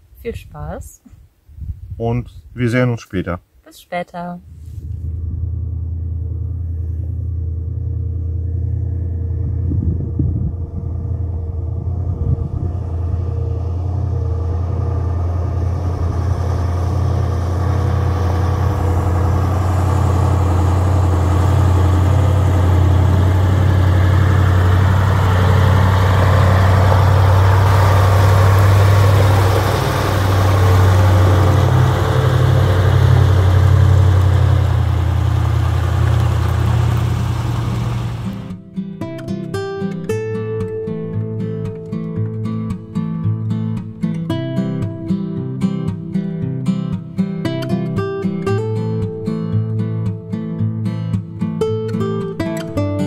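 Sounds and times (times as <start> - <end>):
road and wind noise hiss: 0.0 - 3.7, 9.4 - 38.6
truck engine drone: 4.5 - 38.6.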